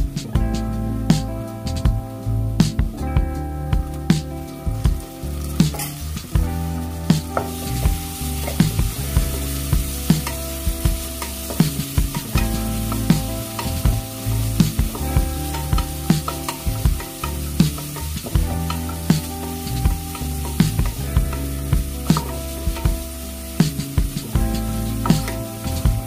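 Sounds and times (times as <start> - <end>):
vegetables sizzling in hot oil: 6.7 - 26.0.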